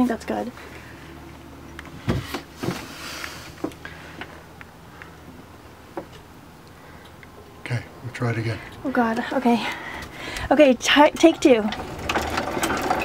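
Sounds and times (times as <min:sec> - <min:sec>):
heavy thump: 0:02.0 - 0:02.9.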